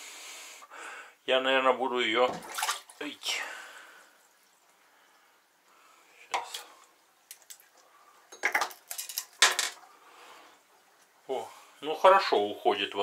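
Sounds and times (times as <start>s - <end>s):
faint hiss: 0.0s - 8.6s, 9.7s - 13.0s
hard objects clinking: 8.3s - 9.8s.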